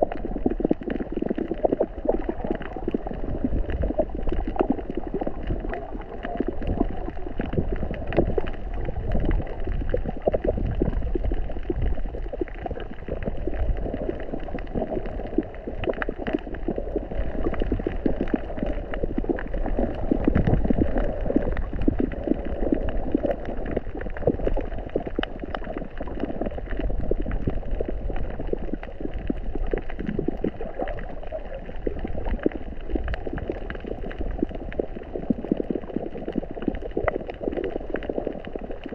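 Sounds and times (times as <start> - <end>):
underwater crackling and popping: 0.0 - 38.9
underwater water rush: 0.0 - 38.9.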